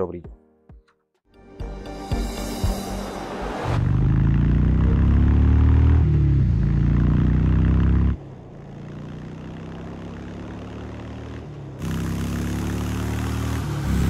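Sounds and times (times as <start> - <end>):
motorcycle engine running: 3.8 - 14.0.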